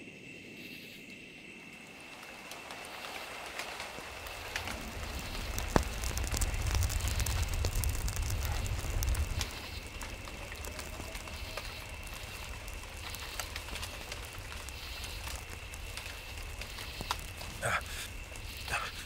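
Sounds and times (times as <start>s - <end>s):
film crackling clicks: 2.5s - 17.5s
low rumble: 4.1s - 18.7s.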